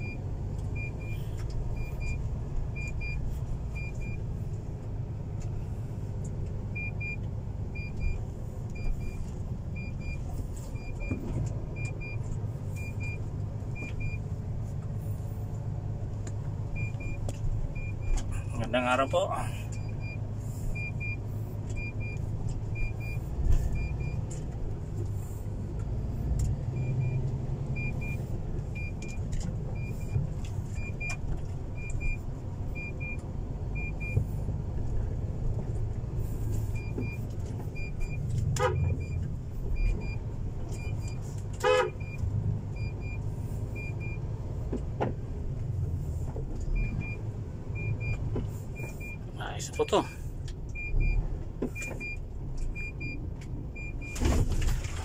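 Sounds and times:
diesel truck engine running: 0.0 - 55.0
truck horn toots: 38.5 - 39.0, 41.6 - 42.1.

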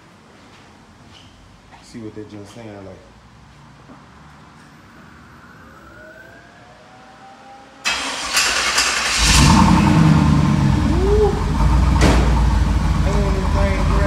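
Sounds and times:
engine cranking and starting: 7.9 - 10.6.

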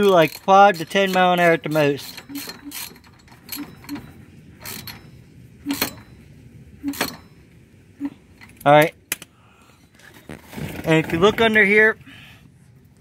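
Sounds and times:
belt scraping and knocking on metal: 0.0 - 7.4, 10.0 - 11.8.

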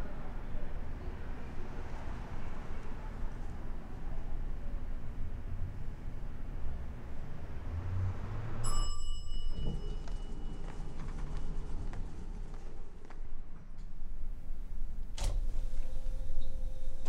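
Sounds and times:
bell-like ding: 8.6 - 10.5.

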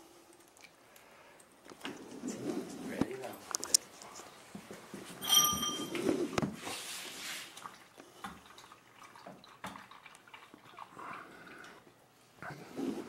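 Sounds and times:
short ringing clink: 5.2 - 6.1.

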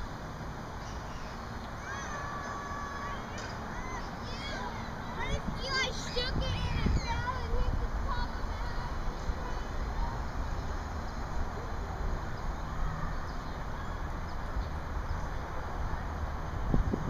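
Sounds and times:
wind buffeting microphone: 3.4 - 17.0.

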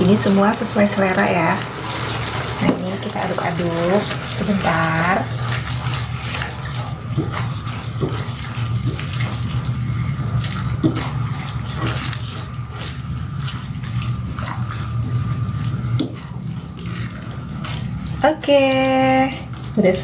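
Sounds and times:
food sizzling in a wok: 0.1 - 20.0.

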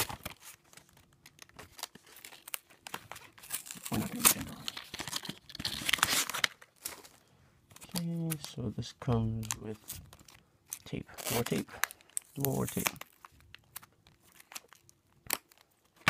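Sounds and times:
tape and cardboard ripping: 1.6 - 7.1, 10.8 - 16.0.

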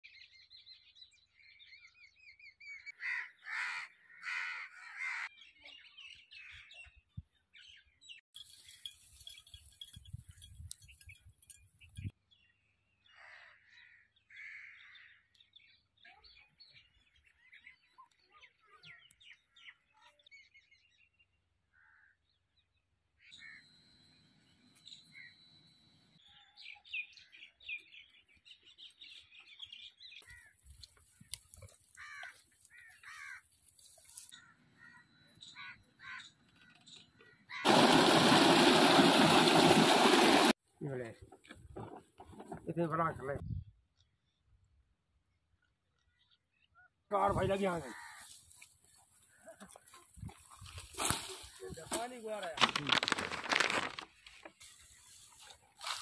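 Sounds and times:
crows cawing: 3.0 - 5.3, 13.1 - 15.2, 31.9 - 33.6, 34.4 - 36.4, 47.6 - 48.6
small birds chirping: 5.3 - 37.7.

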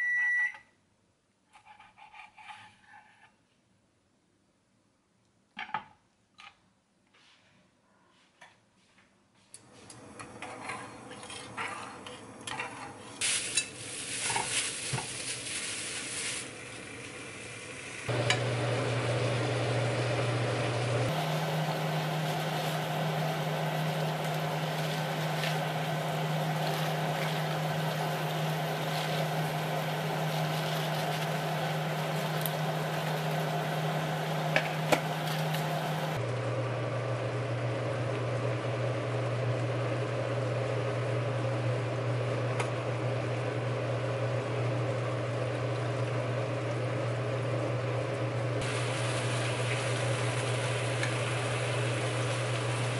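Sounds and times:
food sizzling: 12.9 - 36.2, 48.6 - 52.9
water boiling on gas hob: 13.2 - 52.9.

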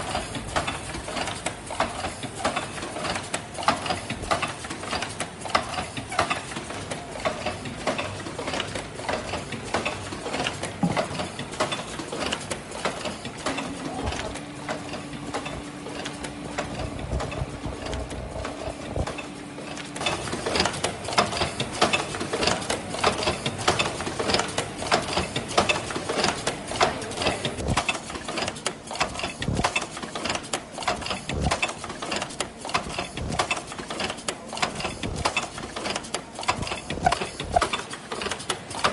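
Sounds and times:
machine clattering: 0.0 - 38.9
steady hum: 8.8 - 25.6, 26.4 - 28.3, 29.0 - 29.8, 31.2 - 31.8, 33.0 - 33.8, 36.4 - 38.2.

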